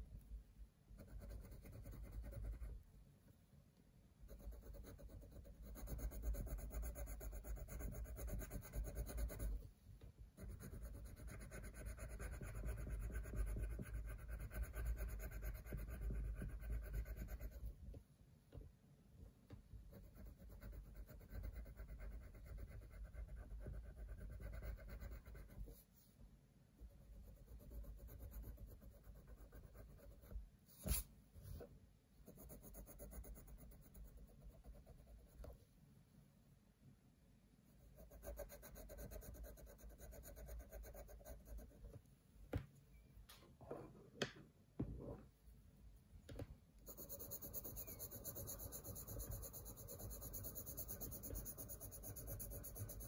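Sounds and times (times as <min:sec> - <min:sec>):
pencil shading on paper: 0:00.9 - 0:02.8, 0:04.3 - 0:09.6, 0:10.3 - 0:17.7, 0:19.9 - 0:25.9, 0:26.9 - 0:31.6, 0:32.2 - 0:35.6, 0:37.8 - 0:41.9, 0:46.8 - 0:53.0.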